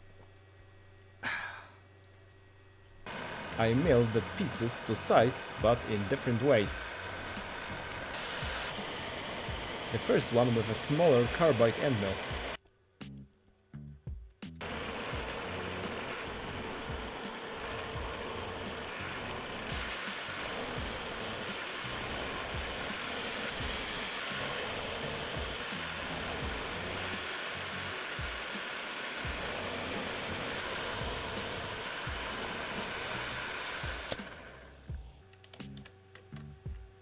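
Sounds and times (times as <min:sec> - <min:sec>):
milling machine cutting metal: 0:03.1 - 0:12.6, 0:14.6 - 0:34.8.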